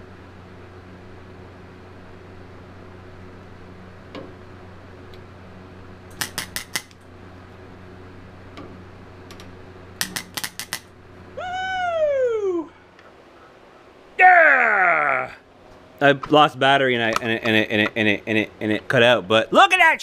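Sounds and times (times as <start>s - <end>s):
steady low hum: 0.0s - 20.0s
welder arc zapping: 6.0s - 11.4s.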